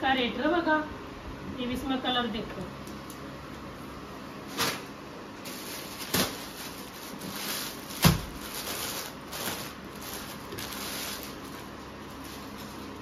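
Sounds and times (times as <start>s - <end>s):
plastic packaging rustling: 4.5s - 13.0s
package thumping on counter: 8.0s - 8.4s.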